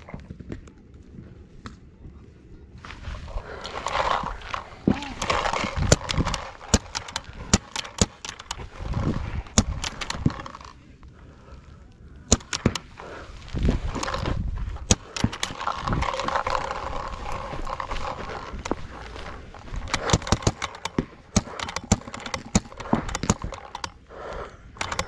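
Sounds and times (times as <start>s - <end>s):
paintball markers firing: 3.3s - 10.8s, 12.2s - 25.0s
balls hitting inflatable bunkers: 12.3s - 23.9s.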